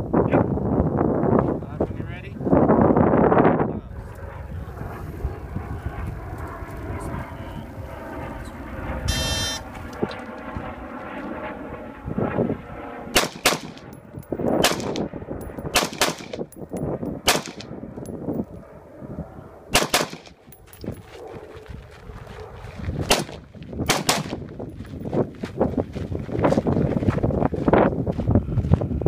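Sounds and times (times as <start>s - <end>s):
rifle shots: 13.1s - 13.9s, 14.6s - 15.1s, 15.7s - 16.5s, 17.2s - 17.7s, 19.7s - 20.4s, 23.1s - 24.4s.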